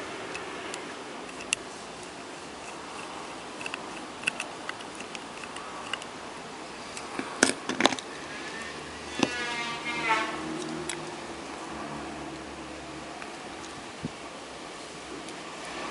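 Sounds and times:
screwdriver clicking on metal: 0:00.3 - 0:06.2.

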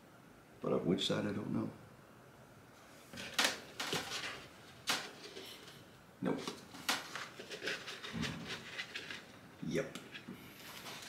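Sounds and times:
plastic parts clicking and rustling: 0:03.2 - 0:05.8, 0:06.4 - 0:09.4.

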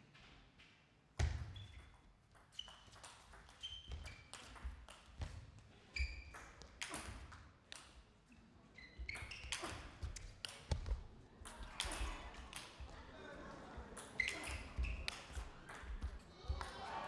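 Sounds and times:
shoes squeaking on floor: 0:01.5 - 0:07.2, 0:08.7 - 0:10.8, 0:14.2 - 0:16.2
ping pong ball hitting bats: 0:01.8 - 0:05.2, 0:09.1 - 0:10.9, 0:14.0 - 0:16.7.

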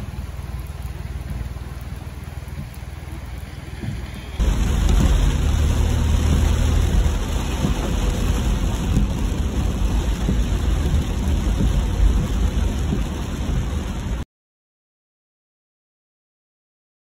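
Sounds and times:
car rumbling on wet road: 0:00.0 - 0:14.2
rain on car roof: 0:00.0 - 0:14.2.

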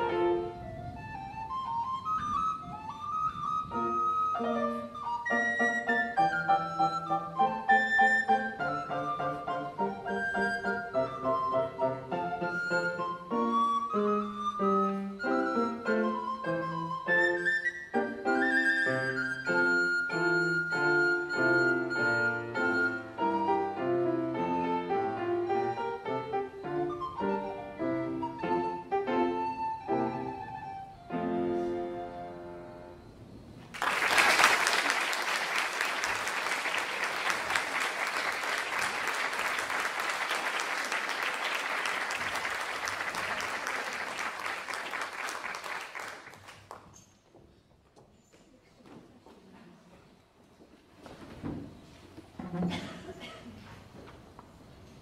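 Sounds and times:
flute and piano classical piece: 0:00.0 - 0:33.5
audience applause: 0:33.7 - 0:46.8.

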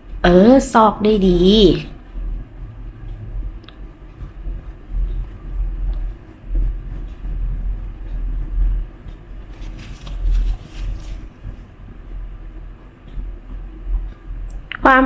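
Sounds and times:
brush rubbing strokes on face: 0:04.1 - 0:11.7.

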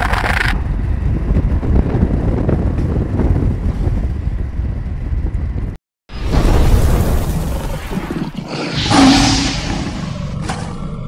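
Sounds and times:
wind buffeting microphone: 0:00.1 - 0:05.8.

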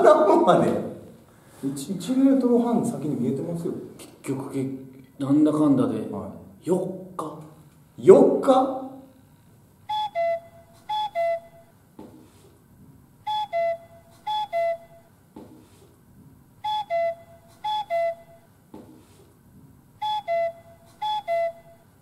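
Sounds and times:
whistle-like jingle: 0:09.9 - 0:11.8, 0:13.2 - 0:15.1, 0:16.6 - 0:18.5, 0:20.0 - 0:22.0
soft thud: 0:12.0 - 0:13.0, 0:15.4 - 0:16.3, 0:18.7 - 0:19.0.

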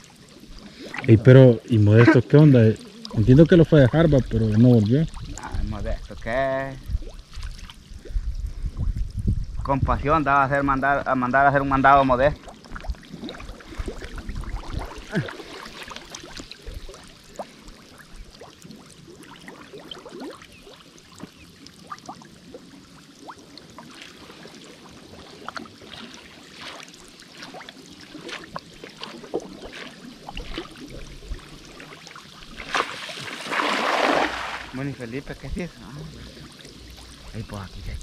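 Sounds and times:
water sloshing and trickling: 0:00.0 - 0:09.2, 0:11.1 - 0:38.0
water splash: 0:12.3 - 0:17.6, 0:23.2 - 0:38.0.

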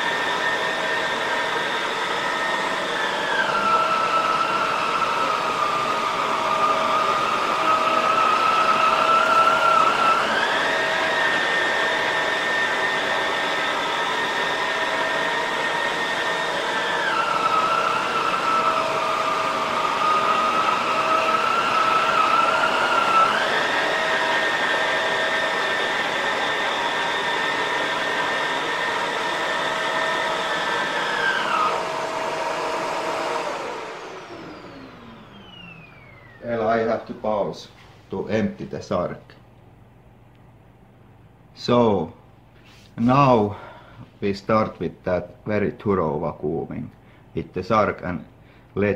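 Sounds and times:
vacuum motor spinning down: 0:00.0 - 0:37.1
vacuum cleaner motor whine: 0:00.0 - 0:37.5.

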